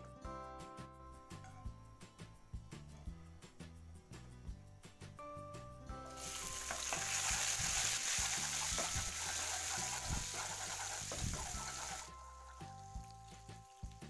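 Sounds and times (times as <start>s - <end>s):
faint background music: 0.0s - 14.0s
garlic sizzling in hot oil: 6.0s - 14.0s.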